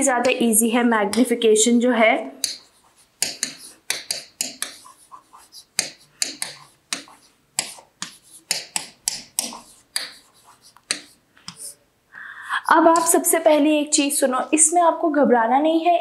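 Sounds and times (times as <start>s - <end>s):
chalk writing on chalkboard: 2.4s - 11.8s, 12.8s - 13.2s.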